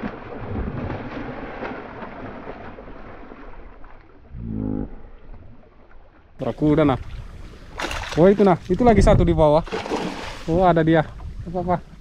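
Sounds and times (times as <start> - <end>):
wind and sea rushing: 6.4 - 12.0
faint splashes or knocks: 7.0 - 8.8.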